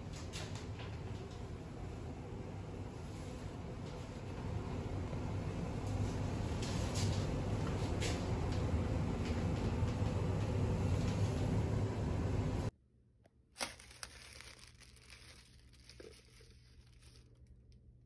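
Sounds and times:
elevator rumble: 0:00.0 - 0:12.7
cellophane crinkling: 0:13.6 - 0:17.9.

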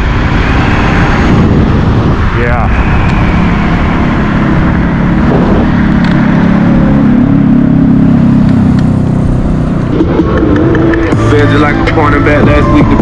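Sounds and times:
electric scooter low drone: 0:00.0 - 0:13.0
wind buffeting microphone: 0:00.0 - 0:13.0.

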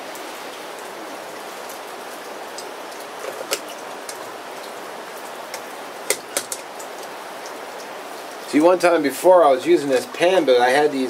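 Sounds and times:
rain hissing: 0:00.0 - 0:11.0
ham sizzling in a pan: 0:05.4 - 0:06.9.

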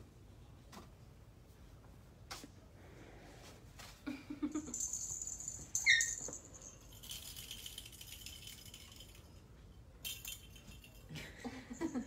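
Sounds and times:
cat toy balls rattling: 0:04.7 - 0:11.2.

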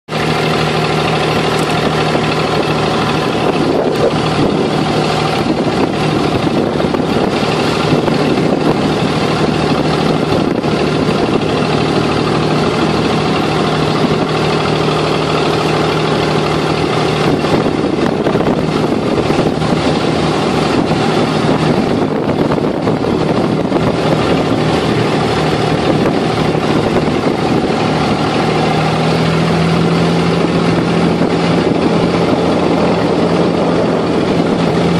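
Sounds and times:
boat diesel engine droning: 0:00.1 - 0:34.9.

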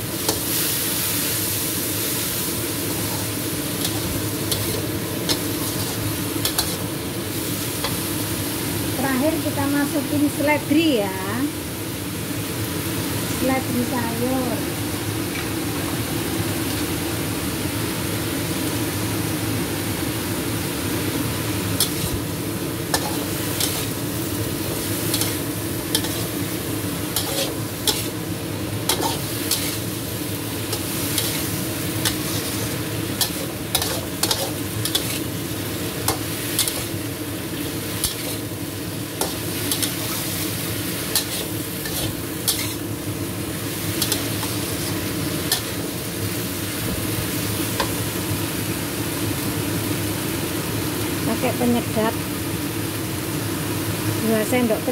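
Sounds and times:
steady sizzle: 0:00.0 - 0:54.9
spatula scraping a wok: 0:02.9 - 0:06.9, 0:21.8 - 0:45.9.

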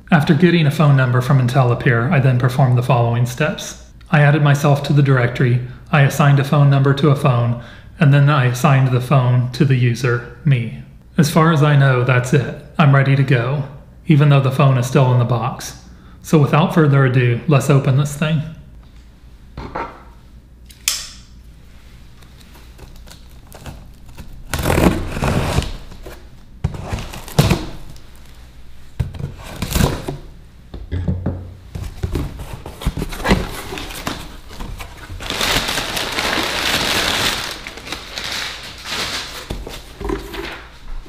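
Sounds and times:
cardboard flaps rustling: 0:22.2 - 0:30.3, 0:31.7 - 0:40.8.

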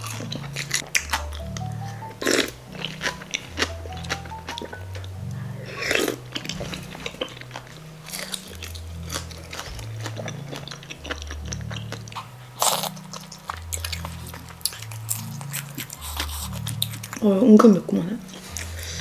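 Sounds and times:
person biting and chewing food: 0:00.0 - 0:17.2.

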